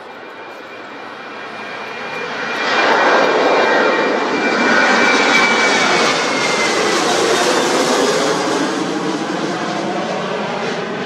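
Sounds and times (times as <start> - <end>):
jet roar with high whine: 0.0 - 11.0.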